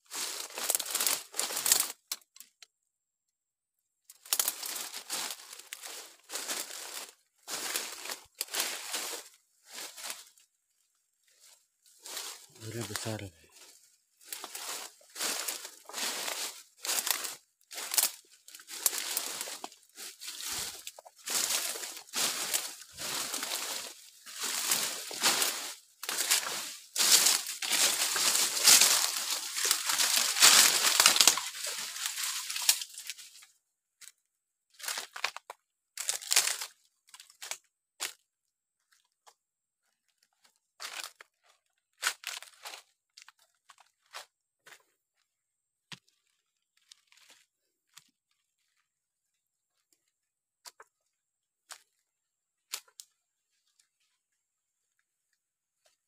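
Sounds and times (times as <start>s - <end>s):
footsteps on dry leaves and twigs: 0.0s - 2.4s, 4.1s - 38.2s, 39.8s - 45.0s, 45.9s - 48.8s, 52.7s - 54.0s
leafy branches rustling: 0.1s - 1.9s, 4.2s - 10.4s, 11.4s - 33.4s.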